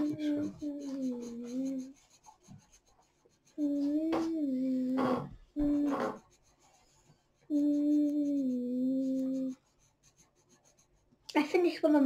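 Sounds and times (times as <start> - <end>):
child humming: 0.0 - 2.0, 3.6 - 6.2, 7.5 - 9.6.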